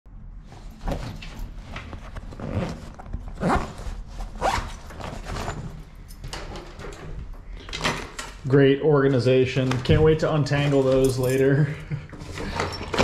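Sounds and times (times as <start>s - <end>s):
backpack zipper being pulled: 2.2s - 5.7s.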